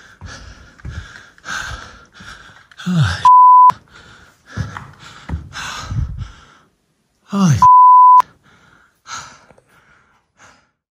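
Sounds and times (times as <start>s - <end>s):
person gasping and sighing: 0.0s - 10.8s
censor bleep: 3.3s - 3.7s, 7.6s - 8.2s.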